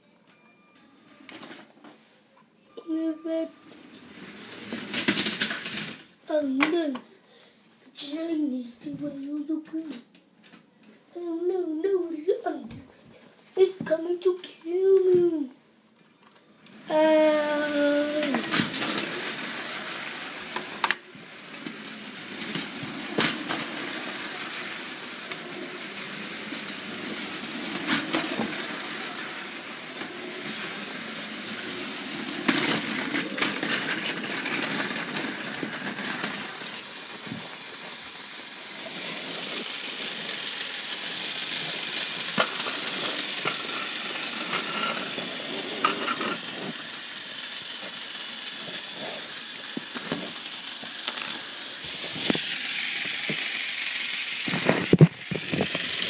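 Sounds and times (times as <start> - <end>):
toy train motor whirring: 2.9 - 7.0, 16.6 - 56.0
plastic bricks clacking: 49.6 - 52.6.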